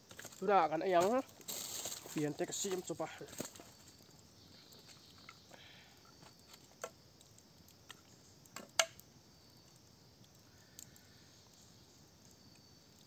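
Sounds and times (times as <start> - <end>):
faint high hiss: 0.0 - 13.0
sharp clicks and light knocks: 6.2 - 9.0.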